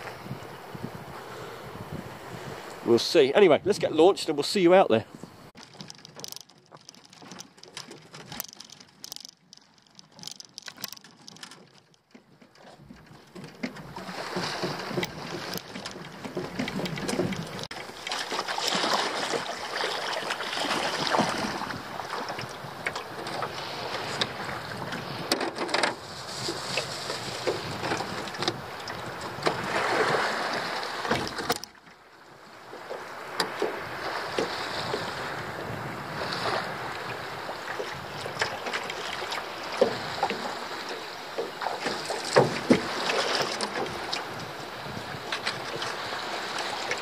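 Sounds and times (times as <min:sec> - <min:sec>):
wind on microphone: 0:00.0 - 0:04.1, 0:20.6 - 0:31.5, 0:33.2 - 0:40.8, 0:42.4 - 0:47.0
feet and oars knocking boat: 0:05.1 - 0:47.0
water sloshing around hull: 0:05.1 - 0:47.0.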